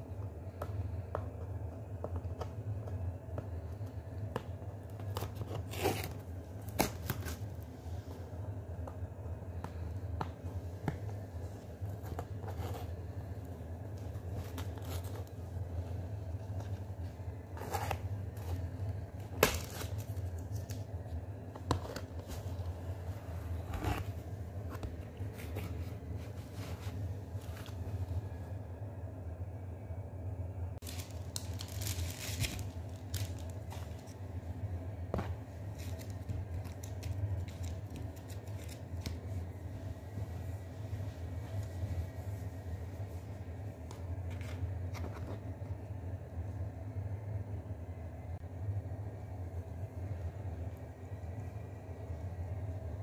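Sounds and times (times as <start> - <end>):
steady low hum: 0.0 - 53.0
cardboard rustling: 9.7 - 28.3, 30.8 - 34.3.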